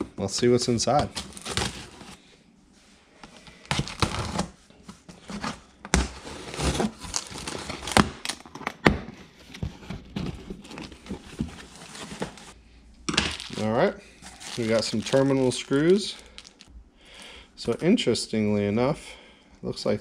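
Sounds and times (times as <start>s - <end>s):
cardboard flaps crinkling: 0.8s - 2.2s, 3.6s - 12.6s, 13.3s - 16.6s.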